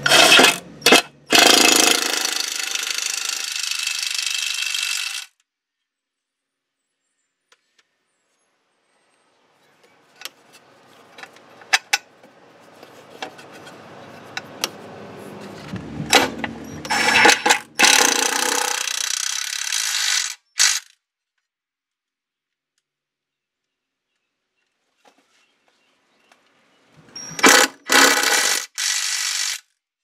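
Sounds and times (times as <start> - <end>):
rough noise: 0.0 - 2.5, 12.6 - 20.9
ratchet wrench clicks: 0.0 - 5.4, 16.2 - 20.9, 27.3 - 29.7.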